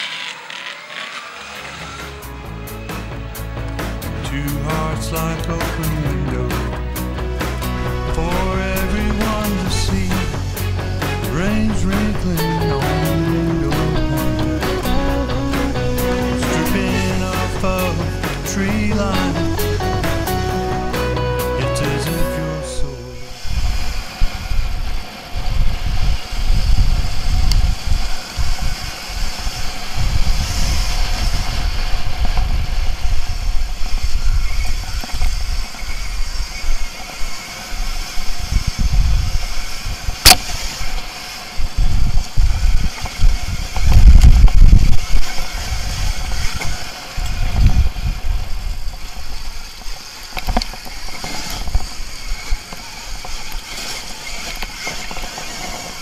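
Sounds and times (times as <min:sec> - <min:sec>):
bike rattling over stones: 0:00.0 - 0:02.2, 0:27.6 - 0:56.0
wind buffeting microphone: 0:22.8 - 0:56.0
sharp knock: 0:40.2 - 0:40.6.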